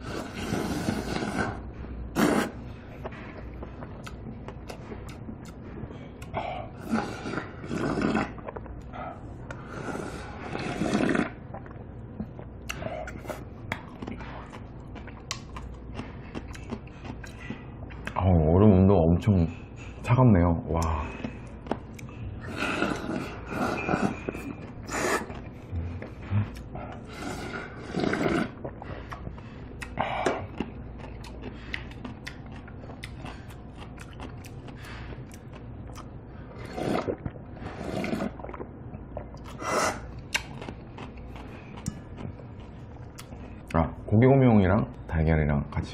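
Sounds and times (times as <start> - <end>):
person slurping noodles: 0.0 - 2.7, 6.6 - 8.7, 9.5 - 11.8, 22.4 - 29.2, 36.5 - 38.6, 39.4 - 40.5
wet chewing mouth clicks: 2.2 - 6.4, 7.7 - 9.6, 10.6 - 18.2, 27.9 - 43.8.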